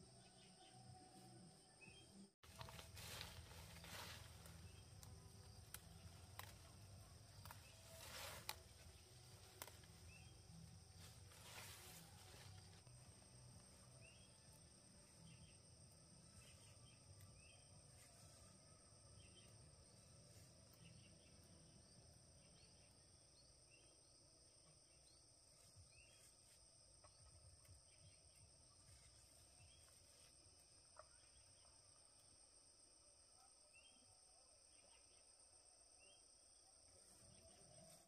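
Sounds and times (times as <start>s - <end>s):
insects trilling: 2.4s - 24.2s.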